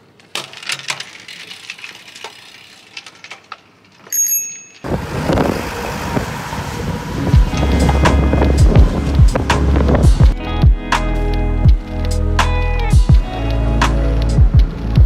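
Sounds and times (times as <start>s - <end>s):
bicycle clicking and ticking: 0.2s - 5.2s, 7.3s - 10.9s, 11.6s - 12.2s, 12.9s - 15.0s
wind and road noise: 4.8s - 15.0s.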